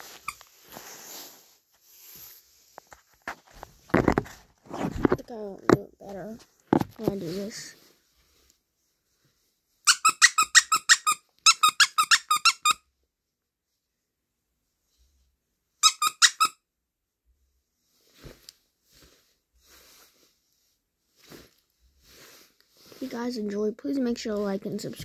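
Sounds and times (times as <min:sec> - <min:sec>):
plush toy squeaker squeaking: 0:09.9 - 0:12.8, 0:15.8 - 0:16.6.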